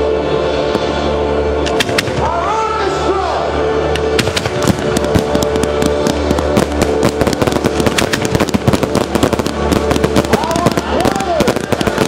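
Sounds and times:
fireworks bangs and crackles: 4.0 - 12.0.

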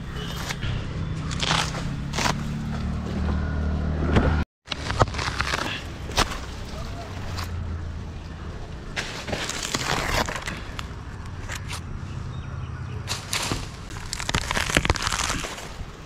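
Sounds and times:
dry palm fronds crackling and snapping: 1.2 - 3.0, 4.7 - 7.6, 8.8 - 11.8, 13.1 - 16.0.

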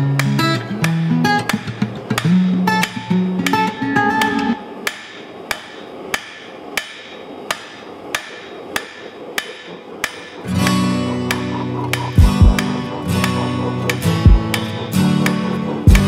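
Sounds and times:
acoustic guitar music: 0.0 - 8.2, 9.3 - 16.0
hammer striking steel on anvil: 4.2 - 16.0.

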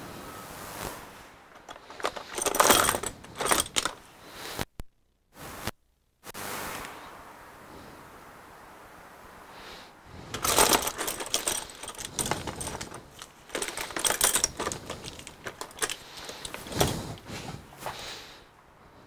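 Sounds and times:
small hard objects clicking and rattling: 1.5 - 4.0, 10.3 - 17.3.

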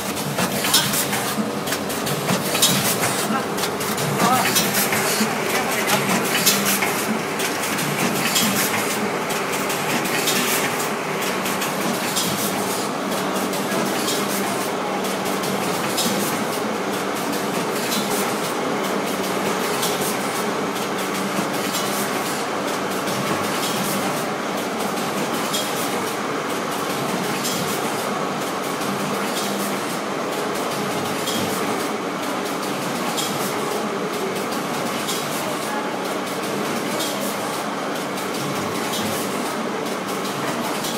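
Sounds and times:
packing machine clattering: 0.0 - 14.3.

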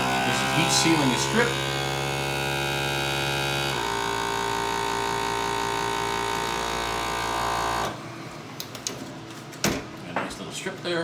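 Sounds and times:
vacuum sealer motor hum: 0.0 - 8.6.

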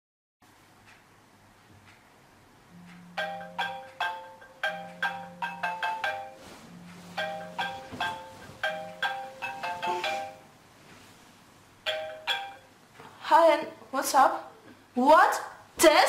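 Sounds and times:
marimba ringtone: 2.7 - 10.6, 11.8 - 12.8.

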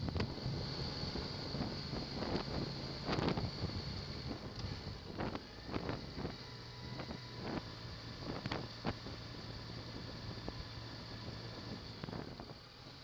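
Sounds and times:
wind noise on microphone: 0.0 - 7.6
motorcycle engine running: 0.0 - 13.0.

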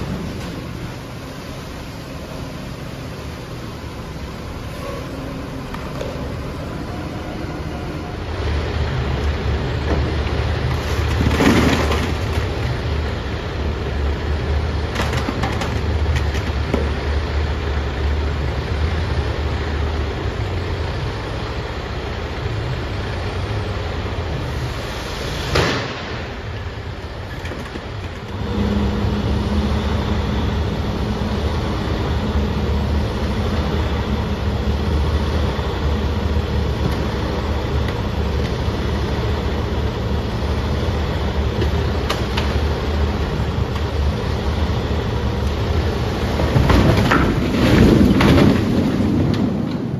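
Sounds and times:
diesel truck engine idling: 0.0 - 11.2, 26.0 - 46.8
steady hum of tipping trailer: 0.0 - 49.9.

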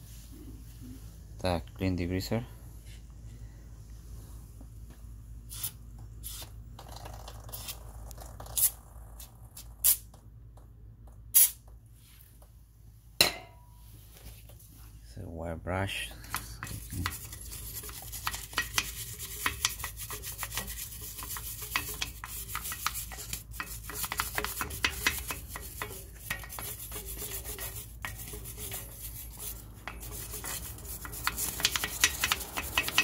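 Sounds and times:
wire brush scrubbing metal: 16.6 - 33.0.

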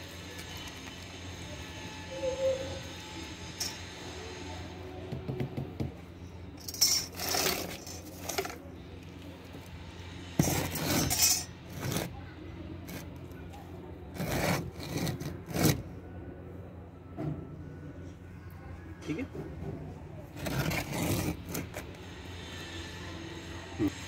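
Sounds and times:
stone scraping on concrete: 6.6 - 8.7, 10.4 - 13.3, 14.1 - 15.9, 20.3 - 22.7.

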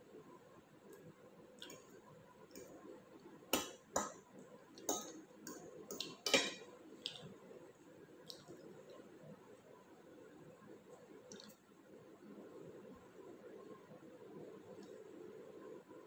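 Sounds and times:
fork clinking on plate: 5.9 - 6.7.

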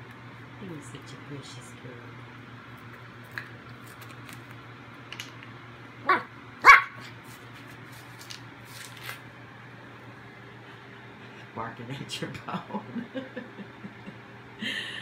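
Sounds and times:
puppy barking: 6.0 - 7.1.

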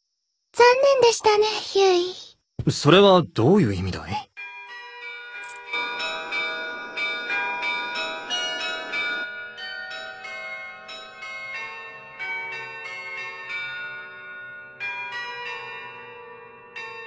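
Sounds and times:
tower bells pealing: 4.4 - 17.0.

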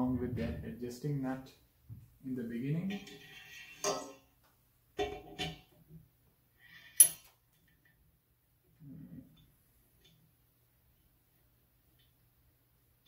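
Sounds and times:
small metal parts clinking: 6.8 - 7.3.

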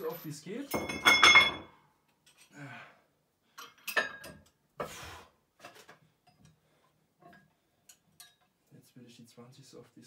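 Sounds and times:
weight plates clinking: 0.0 - 1.8.

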